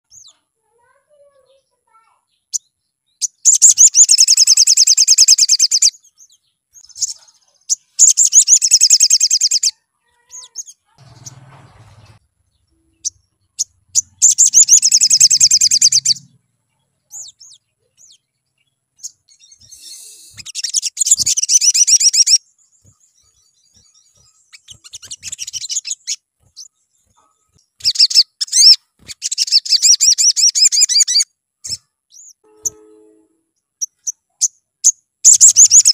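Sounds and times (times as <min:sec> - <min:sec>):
bird chirps: 0:00.1 - 0:35.9
bird trilling: 0:02.5 - 0:05.9, 0:12.8 - 0:16.4, 0:19.0 - 0:22.4, 0:23.8 - 0:34.5, 0:35.2 - 0:35.9.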